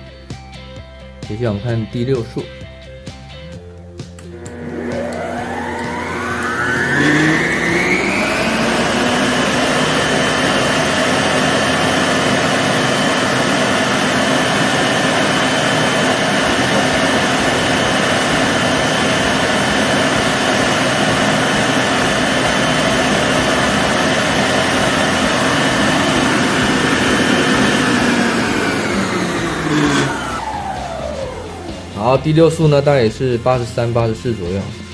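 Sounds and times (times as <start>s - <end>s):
stand mixer motor whining: 4.2s - 34.9s.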